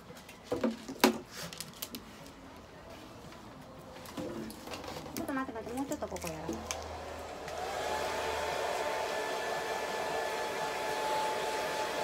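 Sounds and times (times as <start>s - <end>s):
hair dryer motor whine: 6.5s - 12.0s.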